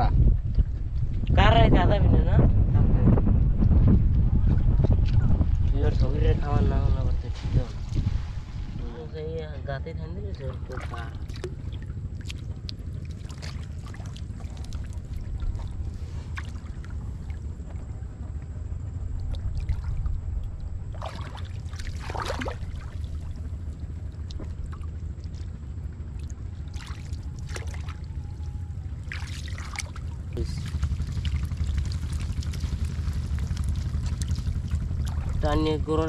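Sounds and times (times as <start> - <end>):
steady low rumble: 0.0 - 36.0
hands splashing in muddy water: 10.6 - 17.4, 20.9 - 23.4, 26.2 - 28.1, 29.0 - 35.4.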